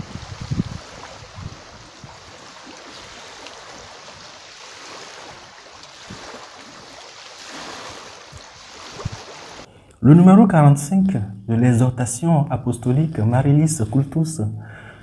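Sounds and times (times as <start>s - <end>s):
water lapping: 0.0s - 9.7s.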